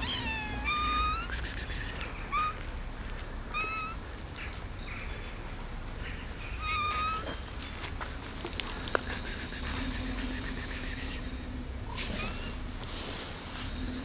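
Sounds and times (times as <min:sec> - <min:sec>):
cats meowing: 0:00.0 - 0:02.7, 0:03.5 - 0:04.0, 0:06.6 - 0:07.4.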